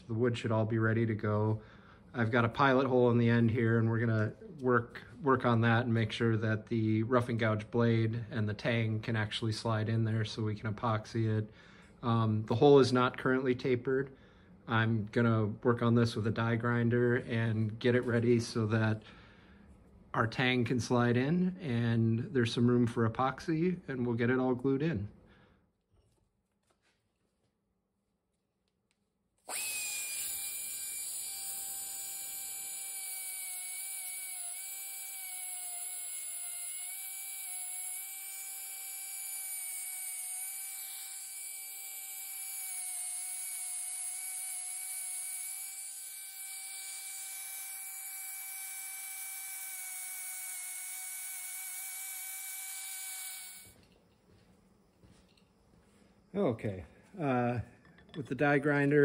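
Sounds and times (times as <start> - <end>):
die grinder whining: 29.5 - 53.8.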